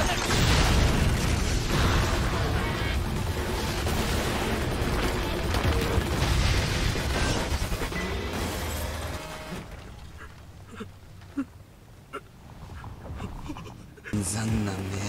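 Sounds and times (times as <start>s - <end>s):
loud explosion: 0.0s - 4.6s
background music: 14.1s - 15.0s.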